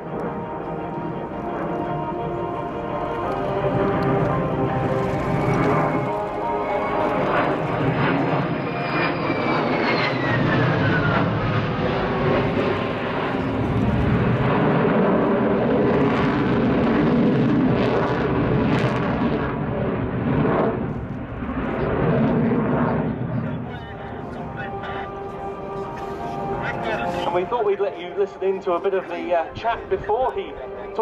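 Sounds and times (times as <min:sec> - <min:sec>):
jet engine roar: 0:00.0 - 0:31.0
jet engine whine: 0:00.0 - 0:31.0.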